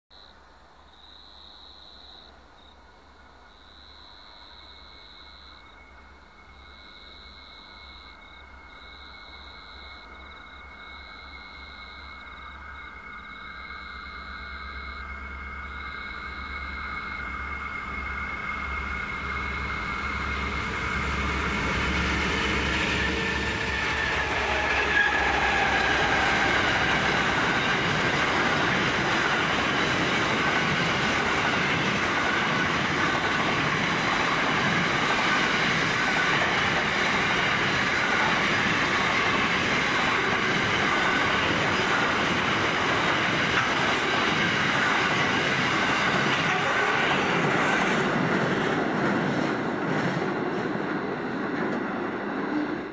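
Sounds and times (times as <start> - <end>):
diesel locomotive engines: 4.2 - 52.9
freight wagons rumbling: 17.3 - 50.2
wheels clacking over rail joints: 20.3 - 52.1.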